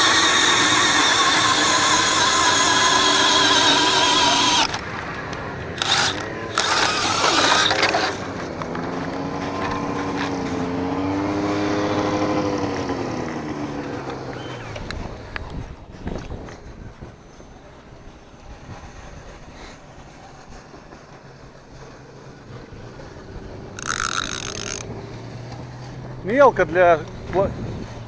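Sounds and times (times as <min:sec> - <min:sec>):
snowmobile engine: 0:00.0 - 0:16.6, 0:17.4 - 0:28.0
rushing air: 0:14.6 - 0:28.0.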